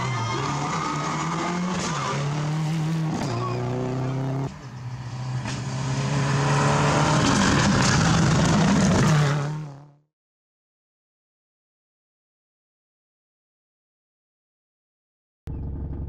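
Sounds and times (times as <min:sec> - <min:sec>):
approaching rally car engine: 0:00.0 - 0:10.0
rally car engine running hard: 0:00.0 - 0:10.0.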